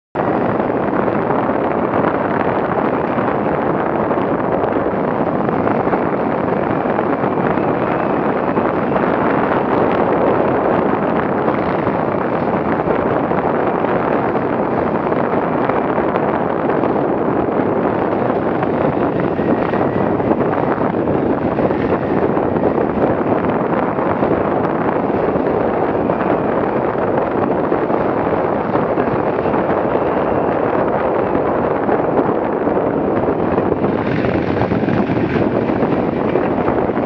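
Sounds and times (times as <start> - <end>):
wind rush on microphone: 0.1 - 37.0
motorcycle engine running: 0.2 - 37.0.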